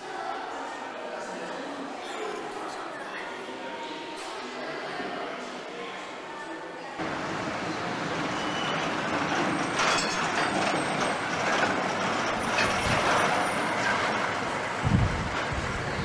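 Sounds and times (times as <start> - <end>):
street traffic passing: 7.0 - 16.0.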